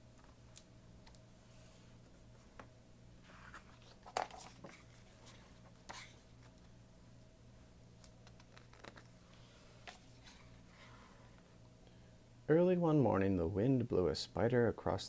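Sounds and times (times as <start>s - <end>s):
low steady hum: 0.0s - 15.0s
book pages rustling: 3.2s - 6.6s, 8.2s - 11.4s.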